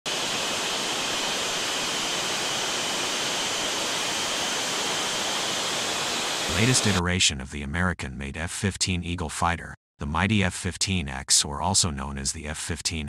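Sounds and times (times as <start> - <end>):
jet engines running: 0.1 - 7.0.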